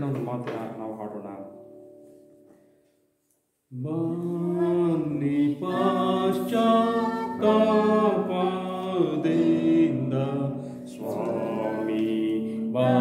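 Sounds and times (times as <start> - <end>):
man singing a slow hymn: 3.7 - 13.0.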